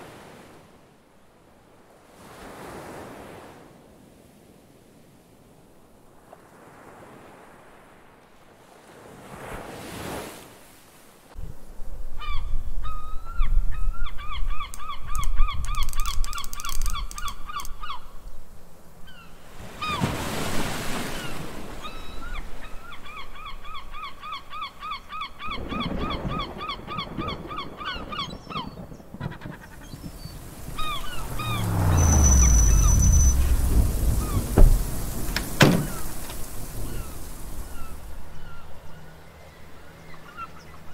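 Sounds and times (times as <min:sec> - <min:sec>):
sea surf: 0:00.0 - 0:11.4, 0:18.8 - 0:23.6, 0:29.5 - 0:40.9
wind rumbling: 0:25.6 - 0:38.7
bird rapid repeated calls: 0:26.4 - 0:35.0
car engine: 0:30.6 - 0:35.8.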